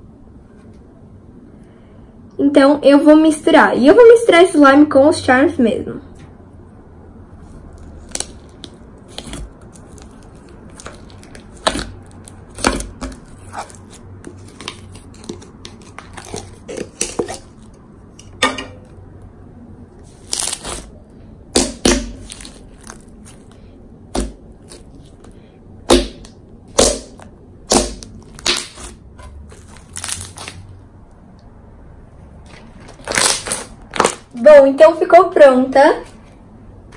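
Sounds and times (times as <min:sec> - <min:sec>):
slime popping and crackling: 0:07.7 - 0:17.7, 0:20.2 - 0:30.7, 0:33.0 - 0:34.3.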